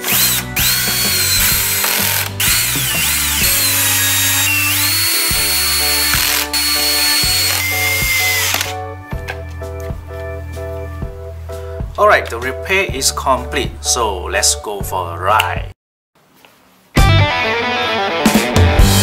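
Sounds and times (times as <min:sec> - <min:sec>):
drill motor whine driving screws: 0:00.0 - 0:08.8.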